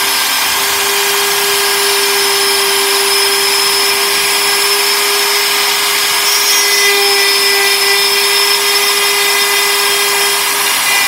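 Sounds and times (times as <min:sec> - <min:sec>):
bit cutting hardwood hiss: 0:00.0 - 0:11.0
router motor whine: 0:00.0 - 0:11.0.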